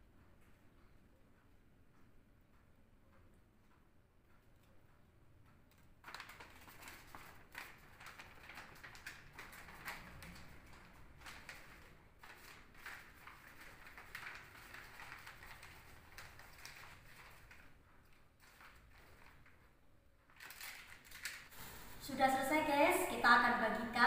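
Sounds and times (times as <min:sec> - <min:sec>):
paper crinkling and rustling: 0:06.0 - 0:22.0.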